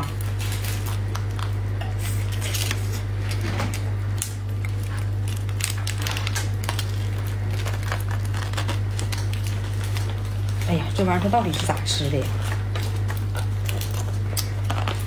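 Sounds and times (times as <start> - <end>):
crab shell cracking: 0.0 - 10.7, 12.4 - 15.0
steady low hum: 0.0 - 15.0.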